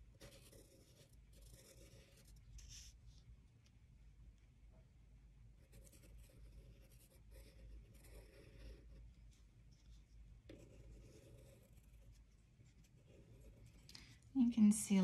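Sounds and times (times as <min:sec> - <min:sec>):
drawing tool scratching paper: 0:00.0 - 0:03.0, 0:05.7 - 0:09.1, 0:10.5 - 0:13.9
low steady hum: 0:00.0 - 0:15.0.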